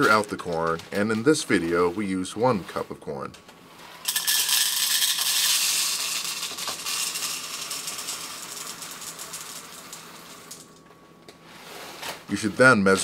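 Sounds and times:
popcorn kernels pouring into cup: 0:03.8 - 0:10.8.

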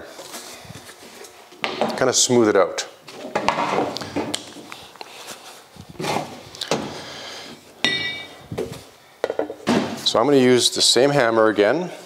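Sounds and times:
short metallic ring: 0:07.8 - 0:08.4.

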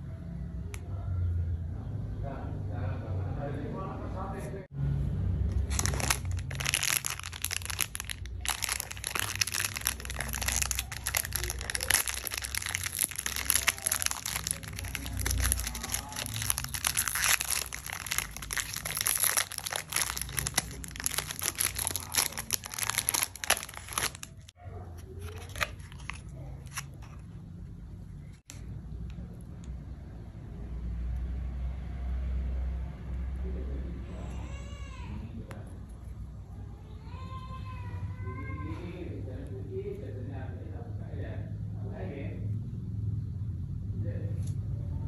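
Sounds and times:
plastic wrapper crinkling: 0:05.5 - 0:27.2.

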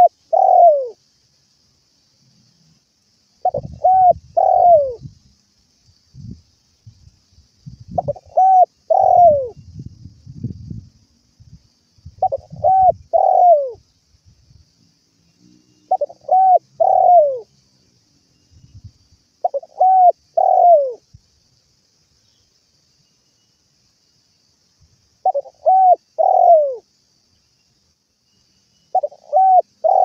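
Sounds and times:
dove cooing: 0:00.0 - 0:01.0, 0:03.4 - 0:05.0, 0:08.0 - 0:09.6, 0:12.2 - 0:13.8, 0:15.9 - 0:17.5, 0:19.4 - 0:21.0, 0:25.2 - 0:26.8, 0:28.9 - 0:30.0
faint low thumps and rumbles: 0:09.6 - 0:12.7.

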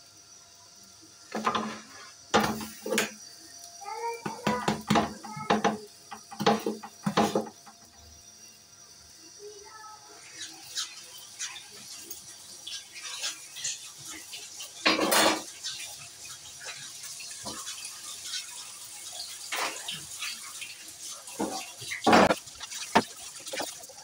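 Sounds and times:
metal utensils and pots clattering: 0:01.3 - 0:03.2, 0:04.2 - 0:07.8, 0:11.4 - 0:24.0.

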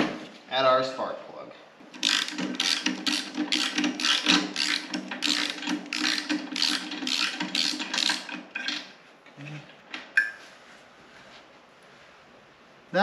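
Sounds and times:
ratchet wrench clicking: 0:02.0 - 0:08.8.

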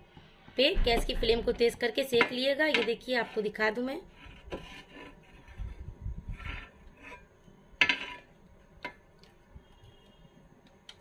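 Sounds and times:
griddle bumps and scrapes: 0:04.1 - 0:08.4.

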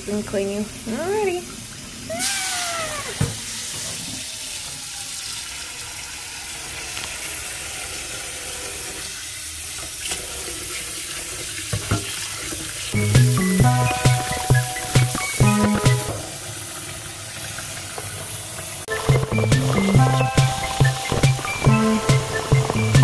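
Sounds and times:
tap water splashing into pan: 0:11.6 - 0:12.6.

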